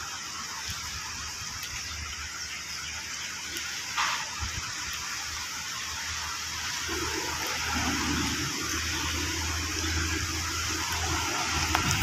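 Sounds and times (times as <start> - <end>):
steady outdoor hiss: 0.0 - 12.0.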